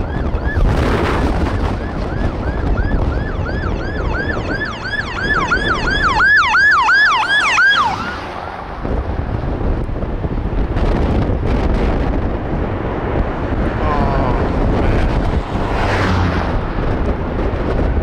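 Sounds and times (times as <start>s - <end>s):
emergency siren yelping: 0.0s - 8.8s
wind rumble on microphone: 0.0s - 18.0s.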